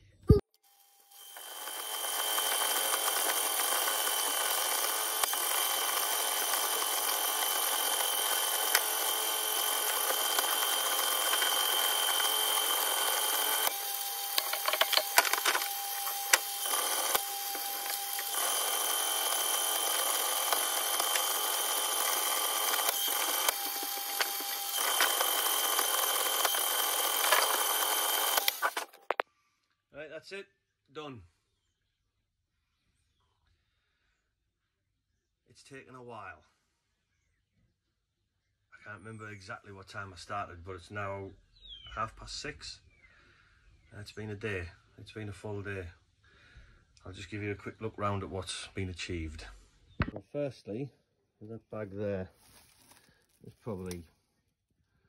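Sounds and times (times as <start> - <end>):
cable stripping machine running: 0.7 - 29.2.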